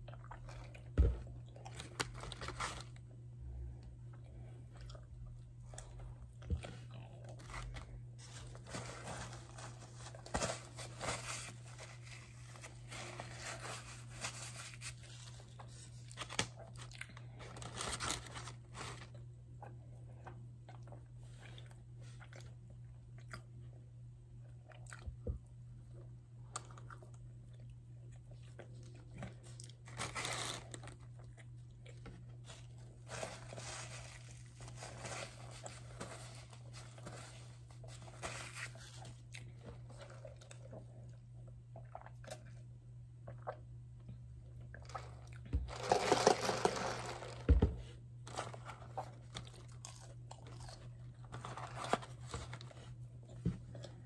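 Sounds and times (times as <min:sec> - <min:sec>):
person chewing crunchy food: 0:15.5 - 0:17.7, 0:48.8 - 0:51.8.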